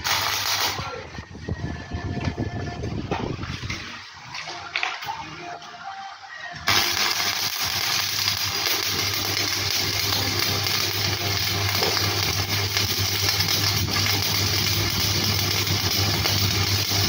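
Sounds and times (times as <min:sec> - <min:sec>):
welding arc crackling and hissing: 0:00.0 - 0:01.0, 0:06.7 - 0:17.0.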